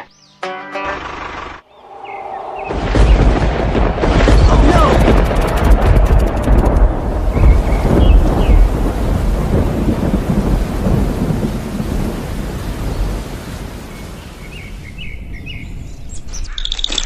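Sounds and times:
bird chirps: 0:00.0 - 0:00.6, 0:01.6 - 0:03.4, 0:14.0 - 0:17.0
rain hissing: 0:01.2 - 0:15.8
low rumble of thunder: 0:02.4 - 0:16.0.

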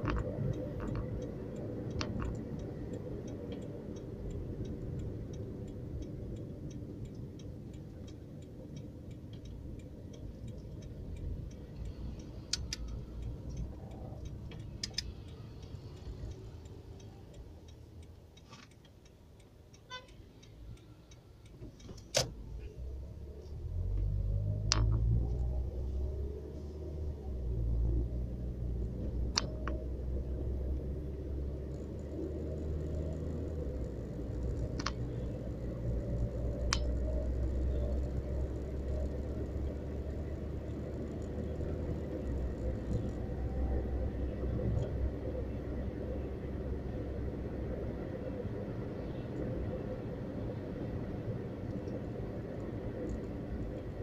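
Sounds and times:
sharp clicks: 0:00.0 - 0:22.9
car engine and tyres rumbling: 0:00.0 - 0:54.0.

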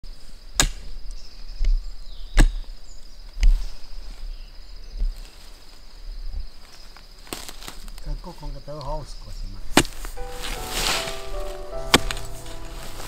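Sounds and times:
hoe chopping into soil: 0:09.7 - 0:12.3
high insect buzz: 0:10.0 - 0:13.0.

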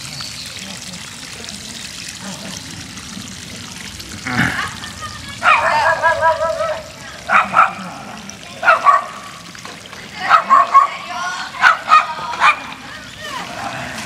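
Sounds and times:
dog yapping: 0:08.6 - 0:09.2, 0:10.3 - 0:11.0, 0:11.6 - 0:12.7.

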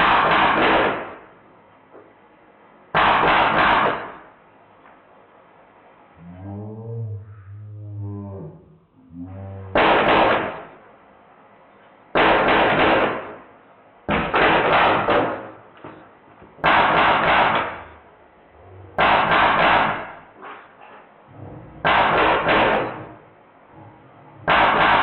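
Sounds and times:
bb gun full-auto bursts: 0:00.0 - 0:01.2, 0:09.8 - 0:10.7, 0:12.2 - 0:13.4, 0:14.2 - 0:15.5, 0:21.8 - 0:23.0.

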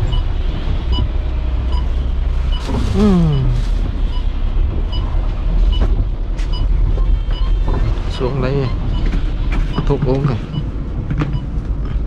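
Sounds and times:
coach engine rumbling: 0:00.0 - 0:12.0.

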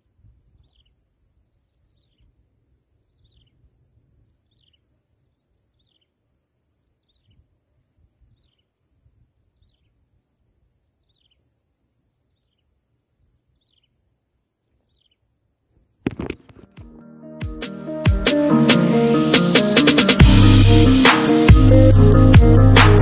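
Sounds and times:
electronic dance music: 0:16.8 - 0:23.0
steady high hiss: 0:18.6 - 0:23.0.

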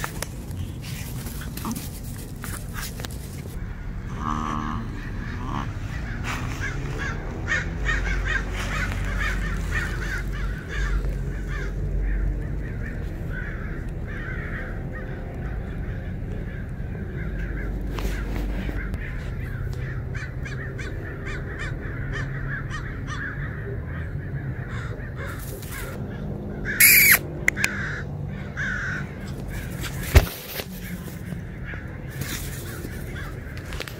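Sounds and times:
birds calling: 0:00.0 - 0:33.9
loud short sound: 0:26.8 - 0:27.2.

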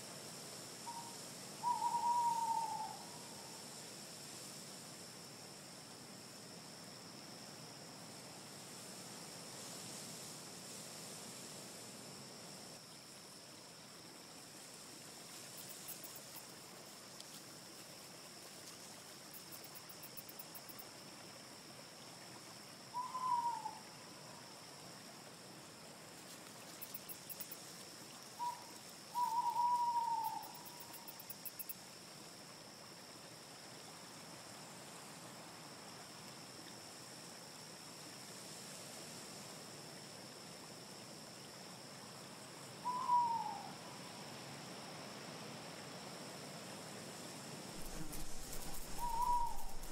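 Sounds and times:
steady forest hiss: 0:00.0 - 0:49.9
faint high chirping: 0:28.4 - 0:31.7, 0:47.8 - 0:49.9
bird calling falling notes: 0:47.8 - 0:49.9.

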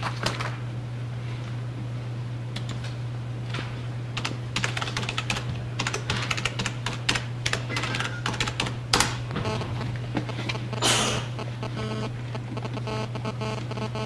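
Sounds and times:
steady low hum: 0:00.0 - 0:14.0.

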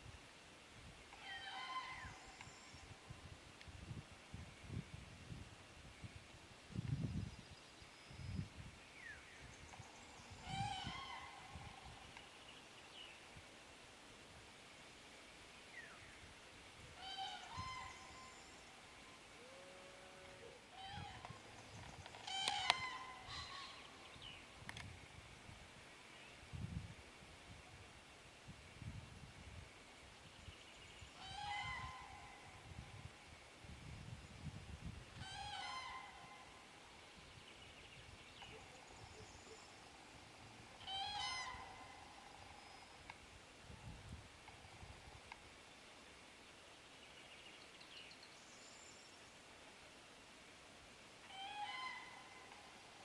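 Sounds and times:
cranes trumpeting calls: 0:01.2 - 0:02.7, 0:10.4 - 0:12.0, 0:17.0 - 0:18.5, 0:22.2 - 0:24.0, 0:31.2 - 0:32.6, 0:35.2 - 0:36.7, 0:40.7 - 0:42.8, 0:51.2 - 0:52.8.

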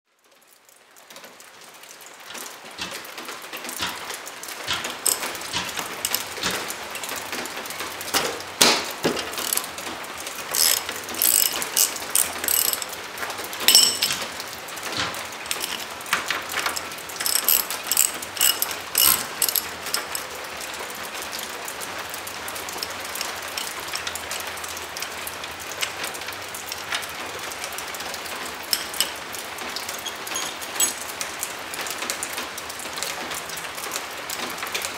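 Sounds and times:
ratchet clicking: 0:04.7 - 0:06.7, 0:08.2 - 0:14.4, 0:15.0 - 0:20.4, 0:23.1 - 0:24.1, 0:28.7 - 0:29.3, 0:30.0 - 0:31.0
metal clinks: 0:05.0 - 0:06.6, 0:09.1 - 0:13.0, 0:13.6 - 0:20.4, 0:28.7 - 0:29.4, 0:30.0 - 0:31.2.

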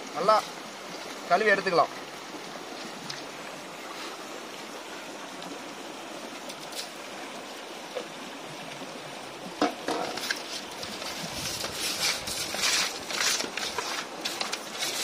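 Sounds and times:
small stream flowing: 0:00.0 - 0:15.0
hand squelching fish in colander: 0:10.2 - 0:15.0.

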